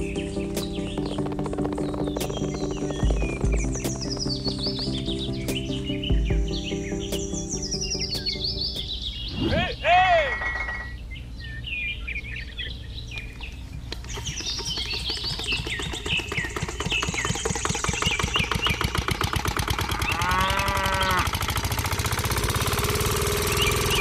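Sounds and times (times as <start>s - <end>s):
diesel engine putter: 0.0s - 7.5s, 13.8s - 24.0s
birds chirping: 0.0s - 24.0s.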